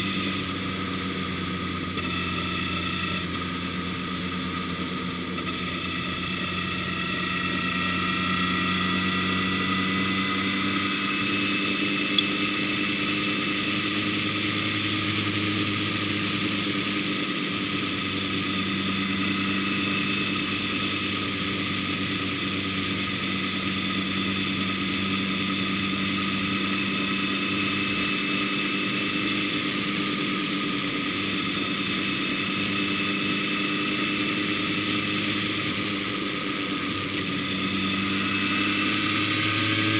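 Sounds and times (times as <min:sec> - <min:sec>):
vehicle engine running: 0:00.0 - 0:39.9
wind and road noise hiss: 0:09.8 - 0:39.9.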